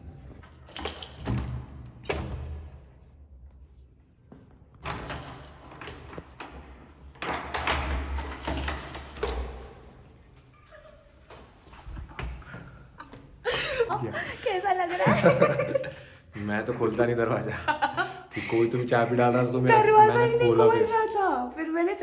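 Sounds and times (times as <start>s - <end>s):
keys and small bell jingling: 0.3s - 2.0s, 4.8s - 10.1s.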